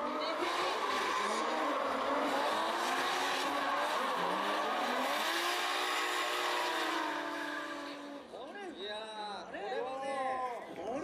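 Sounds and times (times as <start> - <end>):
car engines revving: 0.0 - 8.4.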